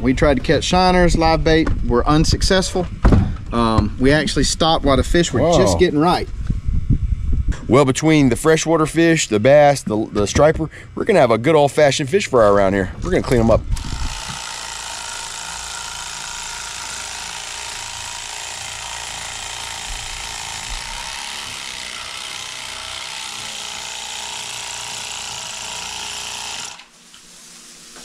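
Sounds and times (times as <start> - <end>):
electric fillet knife cutting fish: 13.8 - 26.9.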